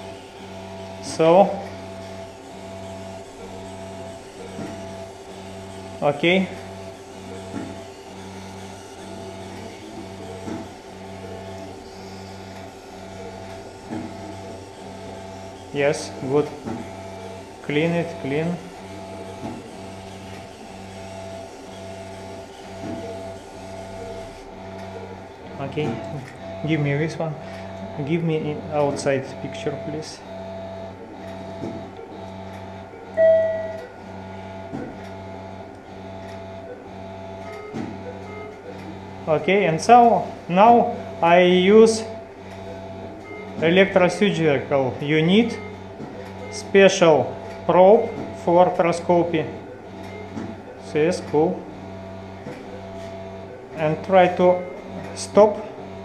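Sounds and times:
surgical shaver motor hum: 0.0s - 56.0s
repeating electronic tone: 33.2s - 33.9s.

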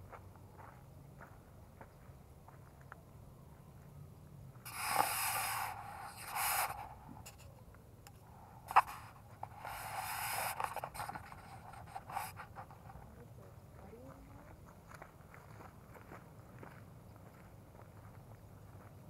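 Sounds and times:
microphone handling scrapes: 4.7s - 7.4s, 8.7s - 12.8s.

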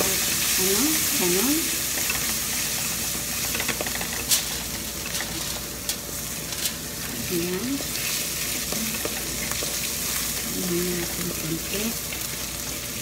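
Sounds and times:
vegetables sizzling in hot oil: 0.0s - 13.0s
spatula scraping and knocking wok: 1.8s - 6.9s.

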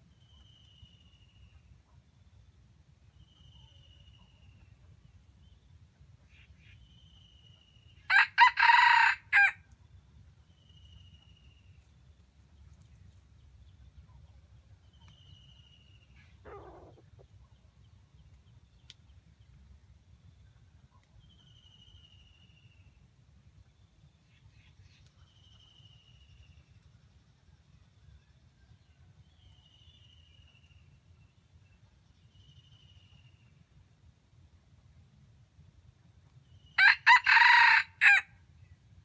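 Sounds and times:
rooster crowing: 8.1s - 9.6s, 36.8s - 38.3s.

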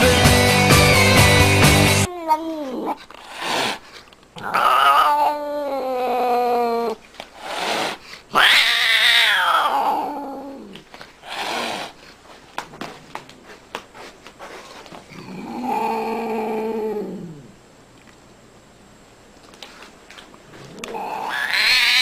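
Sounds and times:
cat meowing: 4.4s - 7.0s, 8.3s - 10.7s, 20.7s - 22.0s.

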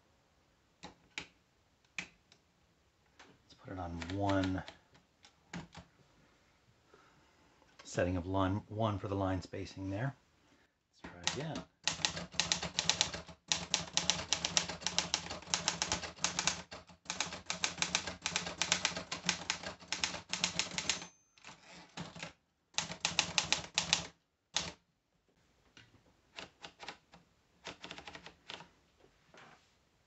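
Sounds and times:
manual typewriter keystrokes: 3.9s - 4.8s, 11.2s - 24.8s, 26.3s - 28.7s.

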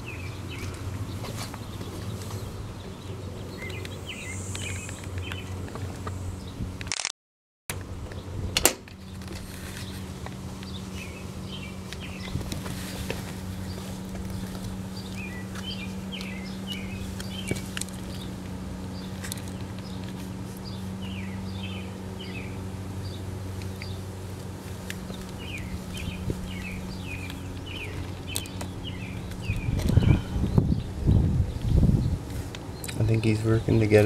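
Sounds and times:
small birds chirping: 0.0s - 6.6s, 9.0s - 34.0s
steady low hum: 0.0s - 6.9s, 7.7s - 34.0s
low rumbling gusts: 24.9s - 34.0s.

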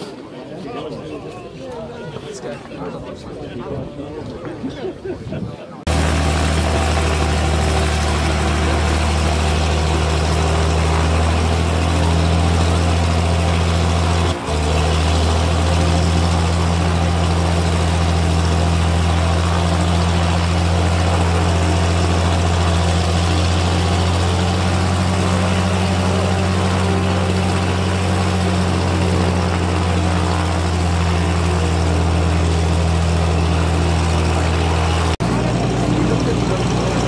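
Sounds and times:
piston aircraft engine droning: 5.9s - 37.0s.

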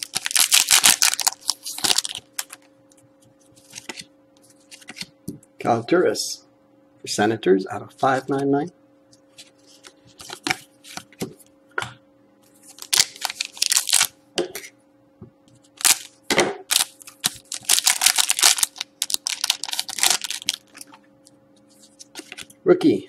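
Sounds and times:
foil wrapper crinkling and tearing: 0.0s - 2.7s, 12.7s - 14.1s, 15.8s - 16.1s, 16.7s - 21.0s
faint steady hum: 0.0s - 23.0s.

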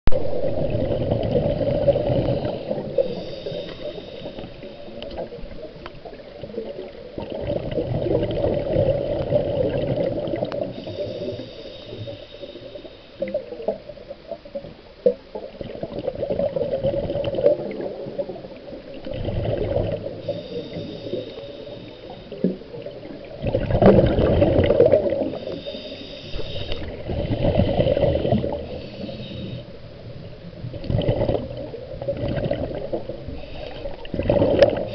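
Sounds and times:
bubbling exhaust underwater: 0.1s - 34.9s
regulator hissing inhale: 2.0s - 5.1s, 10.6s - 13.4s, 20.1s - 22.6s, 25.2s - 29.9s, 33.3s - 34.1s.

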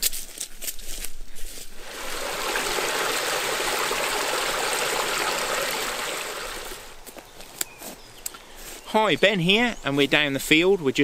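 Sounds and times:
running water trickling: 1.8s - 7.1s.

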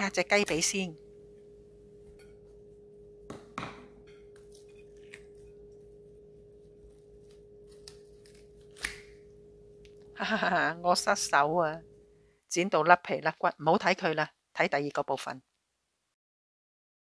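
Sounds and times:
steady low hum: 0.0s - 12.5s
scissors snipping chicken bone: 7.7s - 9.1s.

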